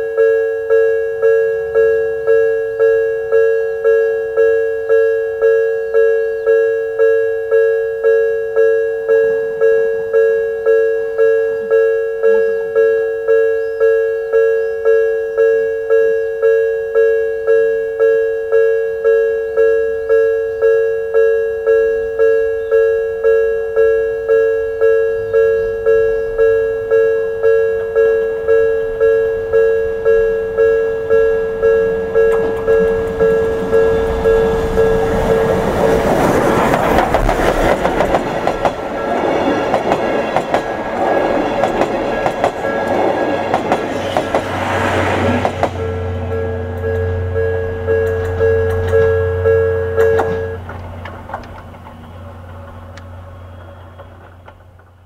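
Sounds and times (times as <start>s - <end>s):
level crossing warning bell: 0.0s - 54.9s
steam train running noise: 24.6s - 55.0s
train wheel clatter: 29.0s - 55.0s.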